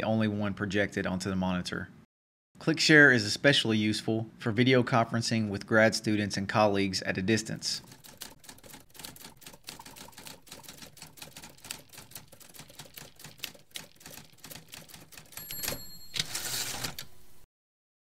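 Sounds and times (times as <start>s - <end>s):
typewriter keys clicking: 7.8s - 17.2s
typewriter bell ring: 14.8s - 17.4s.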